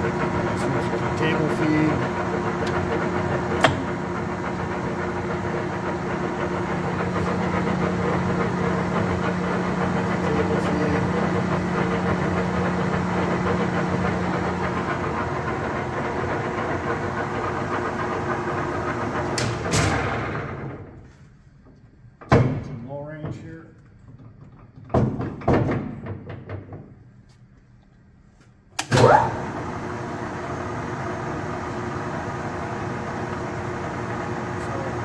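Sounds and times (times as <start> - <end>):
lathe gear hum: 0.0 - 21.0, 28.8 - 35.0.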